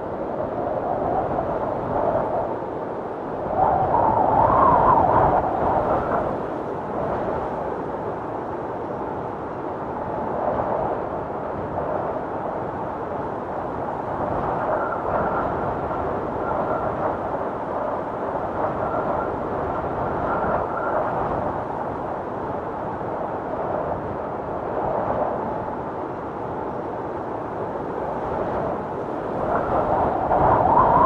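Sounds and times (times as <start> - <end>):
blizzard wind howling: 0.0 - 31.0.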